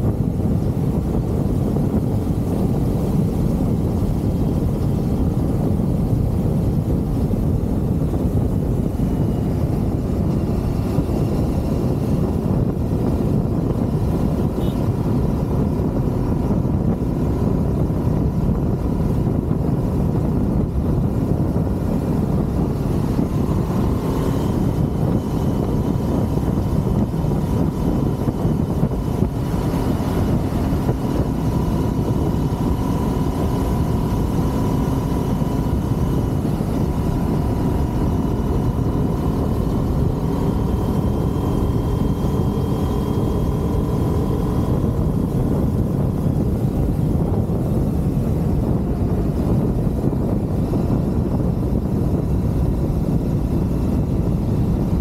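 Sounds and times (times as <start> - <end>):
motorcycle riding: 0.0 - 55.0
wind rushing over microphone: 0.0 - 55.0.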